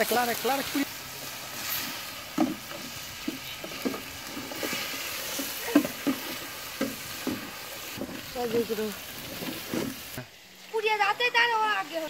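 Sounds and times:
chicken sizzling in oil: 0.0 - 12.0
metal spatula scraping pan: 1.6 - 8.2.

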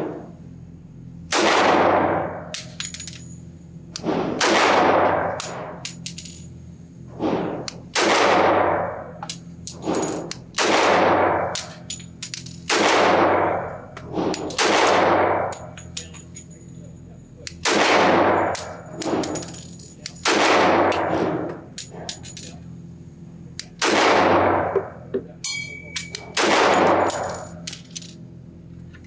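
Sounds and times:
pistol shots echoing indoors: 1.3 - 2.8, 4.0 - 6.0, 7.2 - 9.1, 10.0 - 11.8, 12.6 - 15.8, 17.6 - 21.5, 23.8 - 24.8, 25.8 - 27.6
light metallic clinks: 15.6 - 17.2, 25.4 - 26.3.

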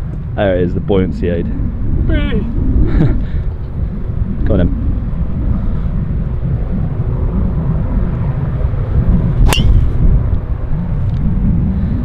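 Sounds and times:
wind buffeting microphone: 0.0 - 12.0
golf driver striking ball: 9.4 - 10.0.

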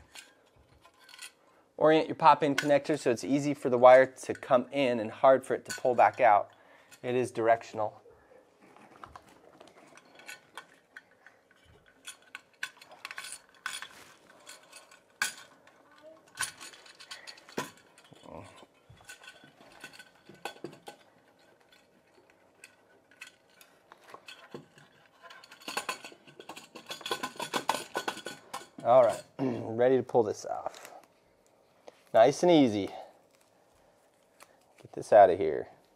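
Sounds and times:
metal box clinking against wood: 9.0 - 29.4.

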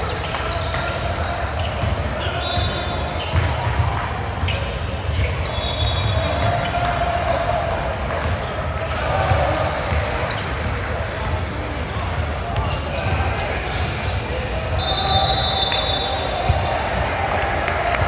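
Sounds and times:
basketball bouncing on court: 0.2 - 7.3, 8.0 - 14.1, 16.3 - 17.2.

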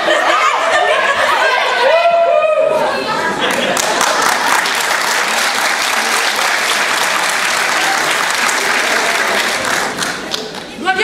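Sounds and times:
audience applauding: 3.4 - 10.8.

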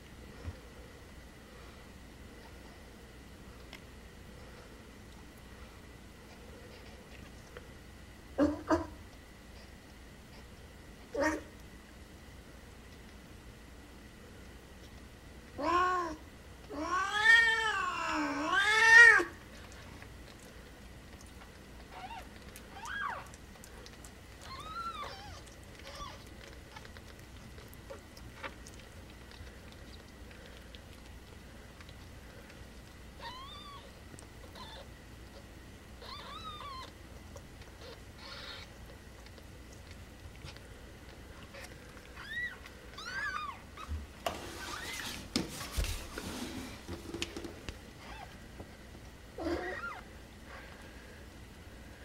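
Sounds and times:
kittens mewing: 37.7 - 38.9, 49.4 - 50.1.

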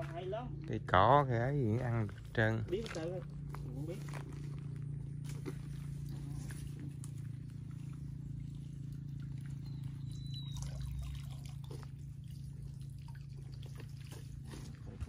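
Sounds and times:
steady low hum: 0.0 - 15.0
water splashing and trickling off net: 10.4 - 14.8.

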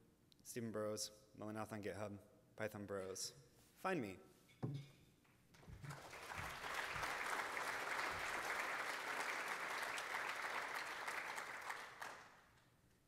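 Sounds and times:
audience applauding: 5.7 - 12.7.

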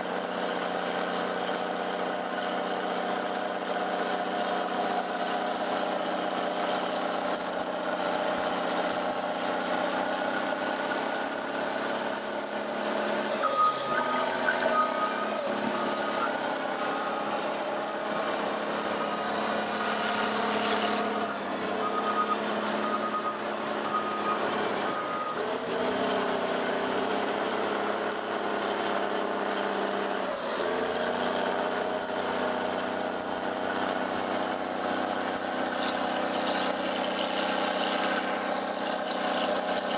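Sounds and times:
diesel machinery engine running: 0.0 - 39.9
reversing alarm beeping: 13.2 - 27.9.

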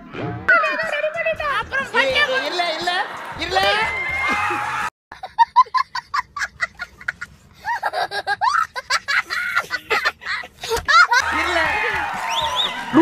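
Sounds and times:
boy laughing: 5.1 - 11.6.

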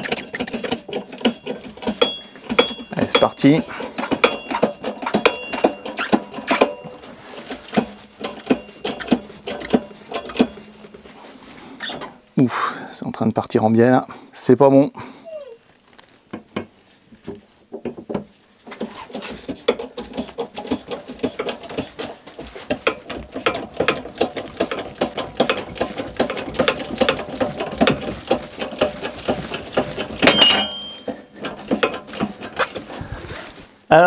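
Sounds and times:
metallic ring: 0.0 - 7.1, 8.2 - 11.0, 30.1 - 31.6
metal creaking and clicking: 0.0 - 11.2, 17.8 - 33.1.

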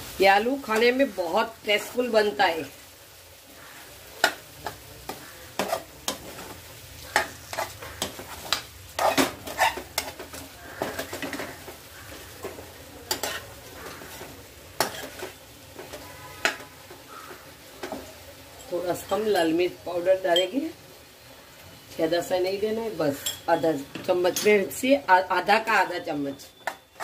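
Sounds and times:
faint frying sizzle: 0.0 - 27.0
steel spoon scraping a pan: 3.6 - 19.5, 23.1 - 23.6, 26.5 - 27.0.

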